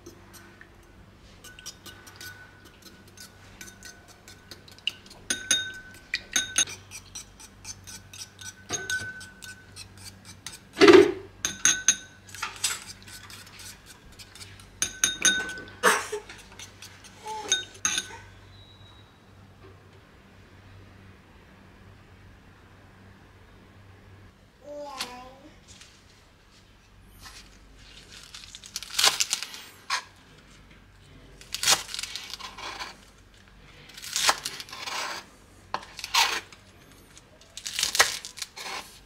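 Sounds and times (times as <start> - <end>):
whisk clinking in metal bowl: 0.0 - 10.7, 11.4 - 18.2.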